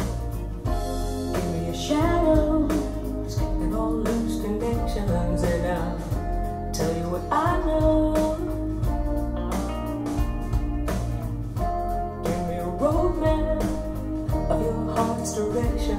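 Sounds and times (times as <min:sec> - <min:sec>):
rock song with vocals: 0:00.0 - 0:15.9.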